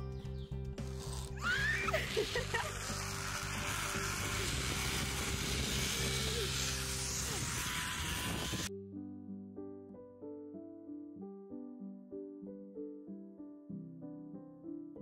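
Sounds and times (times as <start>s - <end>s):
background music: 0.0s - 15.0s
zipline trolley whirring on cable: 0.8s - 8.7s
woman shrieking: 1.4s - 2.7s
woman laughing: 1.5s - 3.1s.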